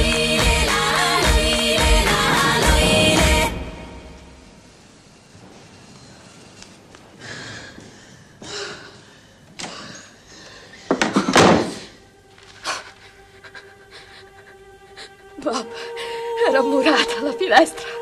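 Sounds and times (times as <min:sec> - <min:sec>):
door knocks and thuds: 0:02.1 - 0:03.7.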